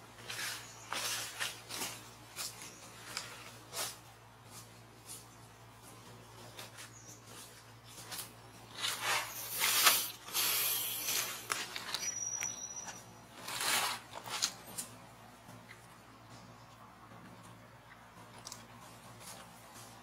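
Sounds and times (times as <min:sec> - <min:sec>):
dry leaves and twigs rustling: 0:00.0 - 0:16.5
high thin whistle: 0:12.0 - 0:13.1.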